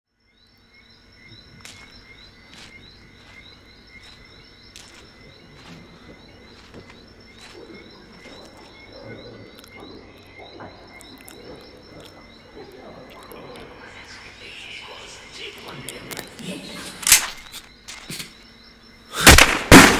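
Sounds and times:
crickets and frogs chirping: 0.1 - 19.9
sharp clicks: 17.0 - 18.4.

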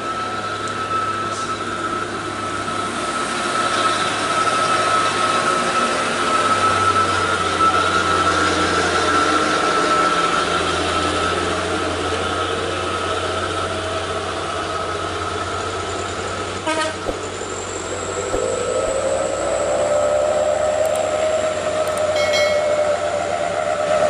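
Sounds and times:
heavy truck engine whining: 2.9 - 24.0
short horn toot: 16.7 - 17.4.

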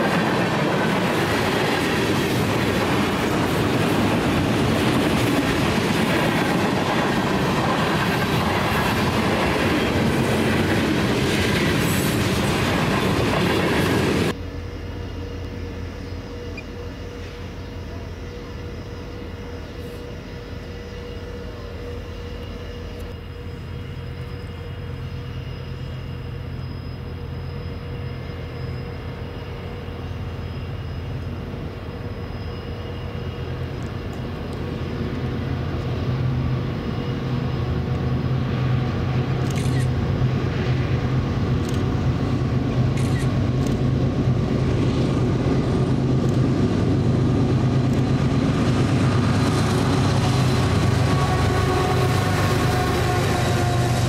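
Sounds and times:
train wheels clicking on rails: 0.0 - 14.4, 38.9 - 54.0
locomotive engine drone: 0.0 - 54.0.

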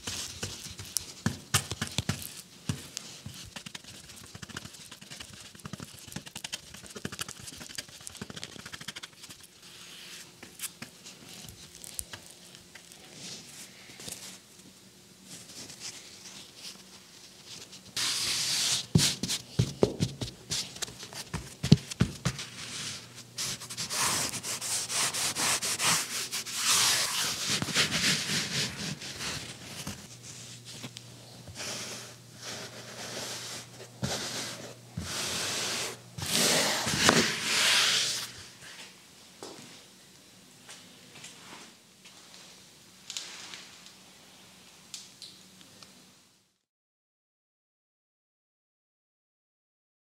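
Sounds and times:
hands rubbing canvas on wood: 0.0 - 11.4, 17.6 - 30.8, 31.5 - 38.4.

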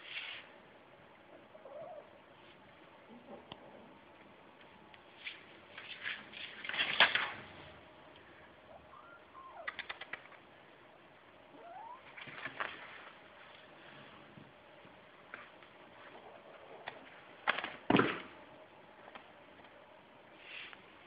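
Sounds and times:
kitten claws scratching and clicking: 9.7 - 10.4.

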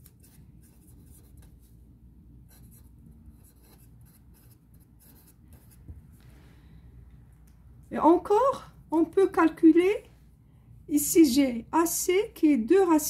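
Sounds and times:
felt-tip pen writing on paper: 2.5 - 5.9.

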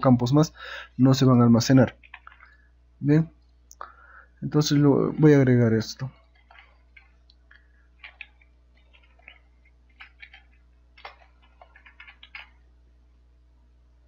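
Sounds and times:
keyboard typing: 1.8 - 2.6, 6.2 - 12.6.

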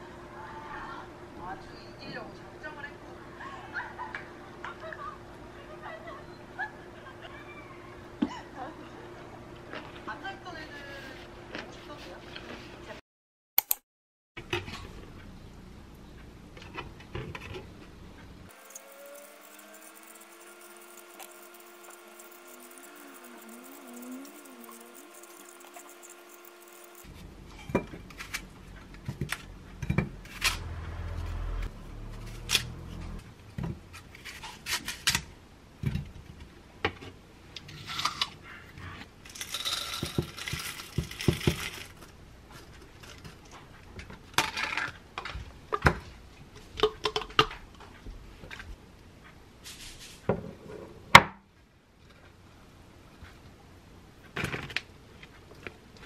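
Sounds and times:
spoons scraping and clinking: 18.5 - 27.1
knife scraping apple peel: 18.6 - 27.1.

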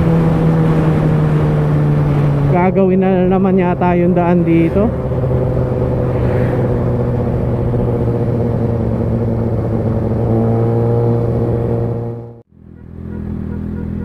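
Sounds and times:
motorcycle engine cruising: 0.0 - 14.0.

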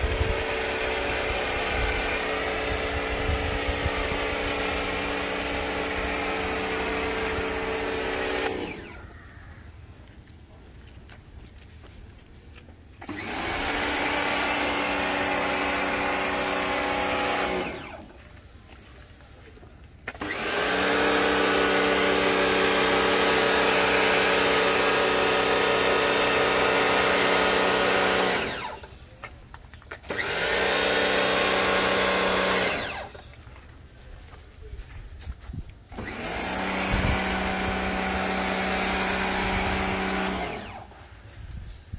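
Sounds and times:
pressure washer motor humming: 0.0 - 9.0, 13.0 - 18.2, 20.0 - 29.1, 30.0 - 33.4, 35.9 - 41.2.

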